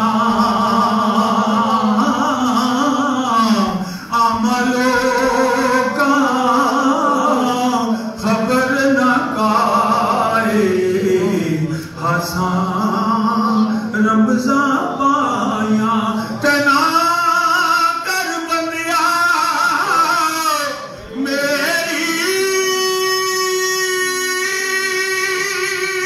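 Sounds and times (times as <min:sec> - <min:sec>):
man singing unaccompanied: 0:00.0 - 0:26.0
singer breathing: 0:03.4 - 0:04.2, 0:07.9 - 0:08.2, 0:11.6 - 0:12.0, 0:16.1 - 0:16.4.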